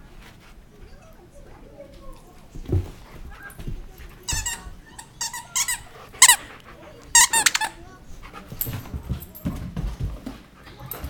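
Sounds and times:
soft knocks and rustling: 0:00.1 - 0:05.4, 0:08.2 - 0:11.0
squeaky toy squealing: 0:05.2 - 0:06.5, 0:07.2 - 0:07.8.

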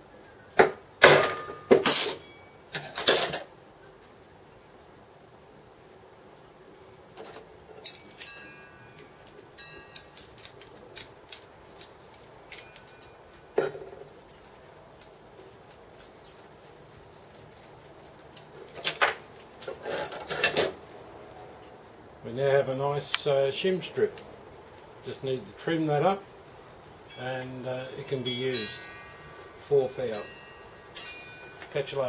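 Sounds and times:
metallic clicks and clinks: 0:07.2 - 0:13.2, 0:14.2 - 0:20.8, 0:27.1 - 0:32.0.

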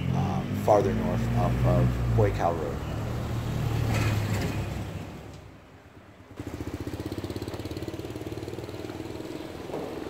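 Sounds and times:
passing vehicle rumble: 0:00.0 - 0:10.0
motorbike idling: 0:06.4 - 0:10.0.

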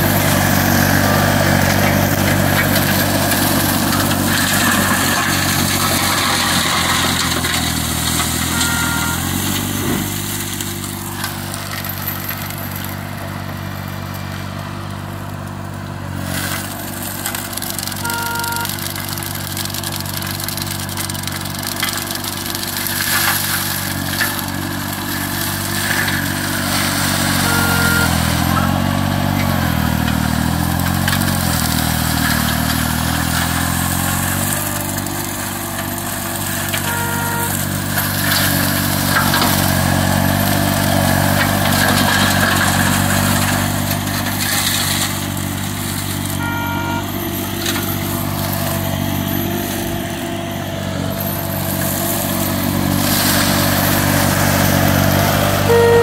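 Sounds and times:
mower engine running under load: 0:00.0 - 0:56.0
short beep: 0:08.4 - 0:10.1, 0:18.0 - 0:18.8, 0:27.3 - 0:28.7, 0:36.8 - 0:37.8, 0:46.4 - 0:47.2, 0:55.7 - 0:56.0.

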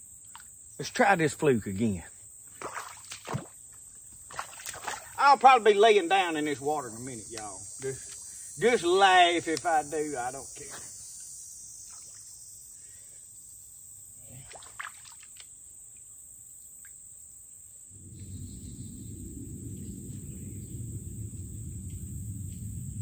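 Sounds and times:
high-pitched insect buzz: 0:02.4 - 0:15.6
low rumbling noise: 0:18.0 - 0:23.0.

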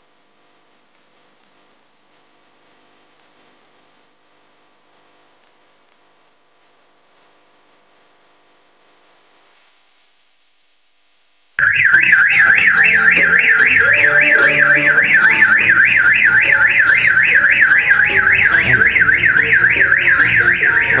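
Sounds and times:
car alarm siren warbling: 0:11.6 - 0:21.0.

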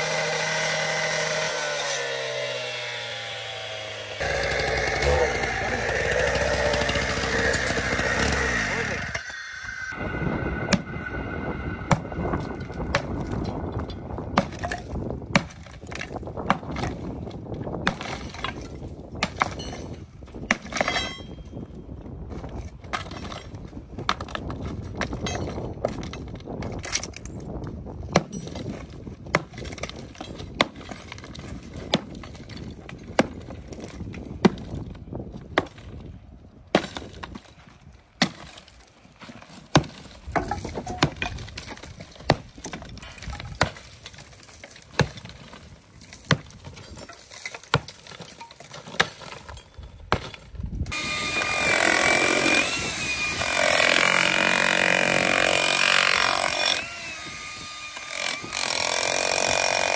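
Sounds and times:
electric demolition hammer: 0:03.0 - 0:13.6, 0:50.9 - 0:59.9
sledgehammer breaking concrete: 0:04.2 - 0:09.2, 0:28.1 - 0:34.9, 0:36.7 - 0:37.5, 0:38.2 - 0:38.8, 0:39.5 - 0:50.5, 0:58.0 - 0:59.9.

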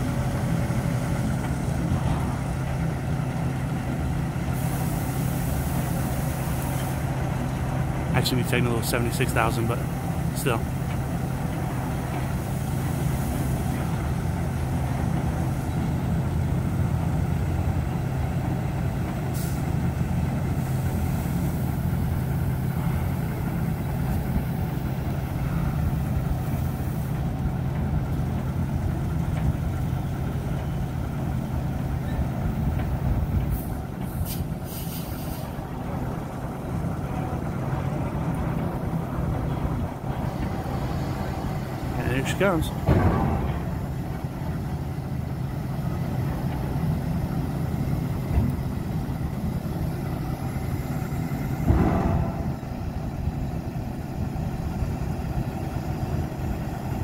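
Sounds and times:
diesel truck engines rumbling: 0:00.0 - 0:57.0
brief hisses: 0:33.6 - 0:35.6.

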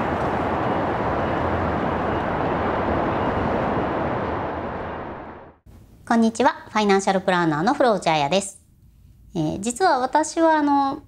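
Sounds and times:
traffic rushing: 0:00.0 - 0:05.6.

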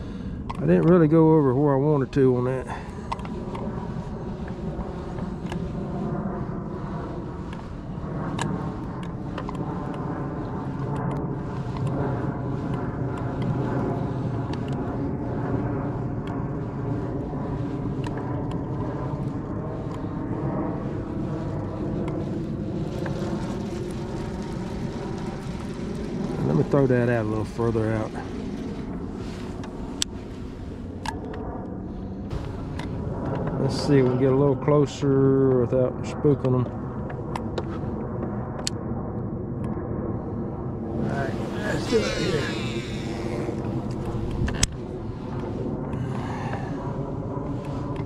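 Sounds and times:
electric trolling motor humming: 0:17.2 - 0:30.1, 0:41.0 - 0:44.8.

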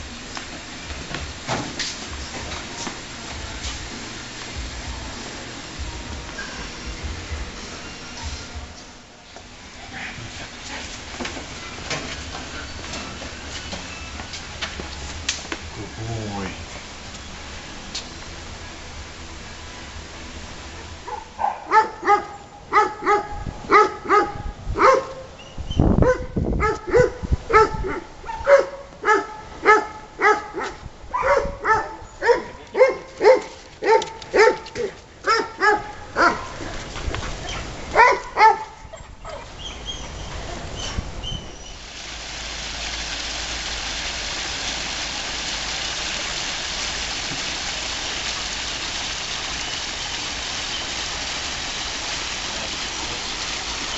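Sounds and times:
steady hiss: 0:00.0 - 0:24.6, 0:39.5 - 0:53.9
dog barking: 0:21.1 - 0:25.3, 0:26.0 - 0:36.6, 0:37.5 - 0:39.5.

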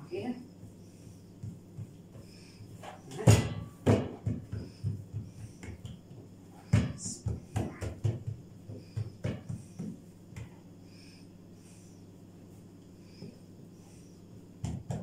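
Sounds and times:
hands patting dough: 0:00.5 - 0:10.6, 0:13.2 - 0:15.0.

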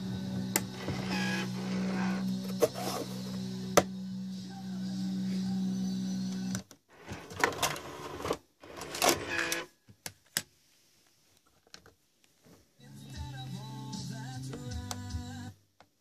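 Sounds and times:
cd changer mechanism whirring: 0:00.0 - 0:04.4, 0:05.2 - 0:06.6
radio music: 0:00.0 - 0:06.6, 0:12.8 - 0:15.6.

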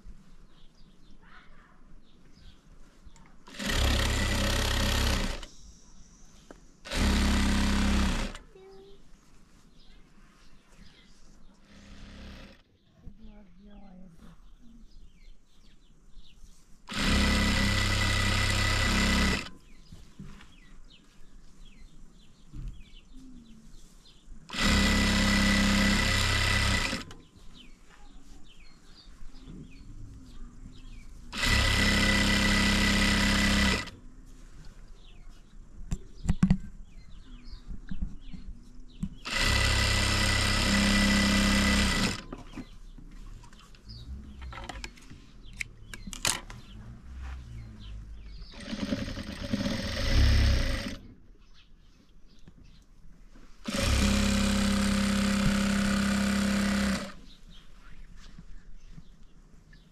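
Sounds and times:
sewing machine running: 0:03.5 - 0:05.5, 0:06.9 - 0:08.4, 0:11.6 - 0:12.6, 0:16.9 - 0:19.5, 0:24.5 - 0:27.2, 0:31.3 - 0:34.0, 0:39.2 - 0:42.3, 0:48.5 - 0:51.0, 0:53.7 - 0:57.2.

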